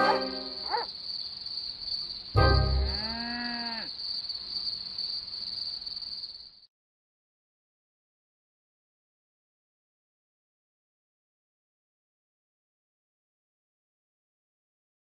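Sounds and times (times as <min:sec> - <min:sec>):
crickets chirring: 0:00.0 - 0:06.7.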